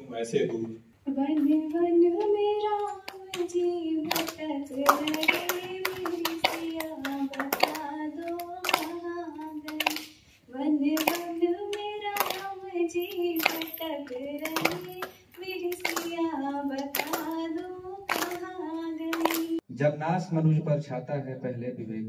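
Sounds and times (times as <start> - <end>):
woman singing into a microphone: 1.1 - 19.6
sharp claps: 3.1 - 10.2, 10.9 - 19.6.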